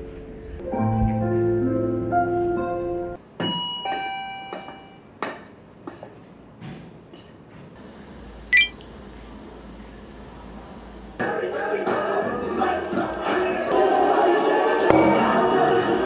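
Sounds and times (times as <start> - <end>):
high ringing ding: 3.5 - 5.1, 8.6 - 8.8.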